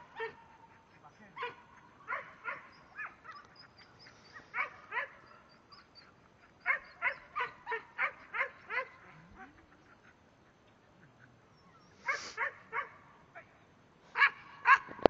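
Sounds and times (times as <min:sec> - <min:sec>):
dog barking: 0:00.1 - 0:00.6, 0:01.4 - 0:03.4, 0:04.4 - 0:05.4, 0:06.6 - 0:09.6, 0:12.0 - 0:13.0, 0:14.2 - 0:15.0.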